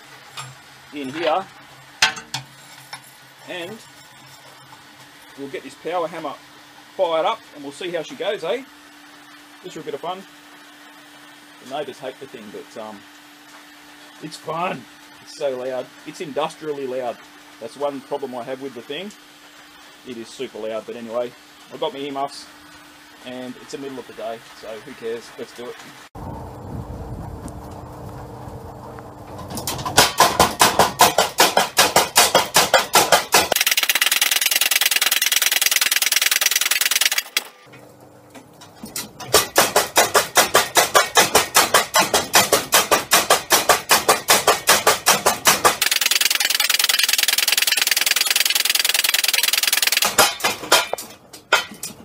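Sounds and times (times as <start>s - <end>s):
motor hum: 25.9s - 30.0s, 33.3s - 38.9s, 45.7s - 50.4s
power hammer pounding steel: 29.7s - 37.5s, 39.2s - 51.8s.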